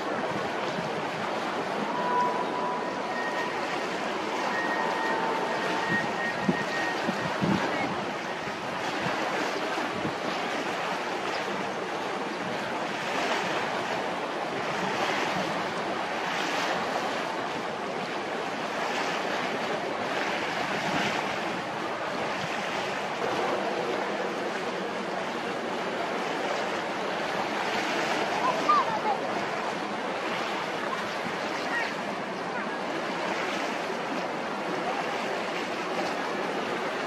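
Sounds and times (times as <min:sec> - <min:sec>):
wind on microphone: 0:00.0 - 0:10.7
water lapping: 0:00.0 - 0:37.0.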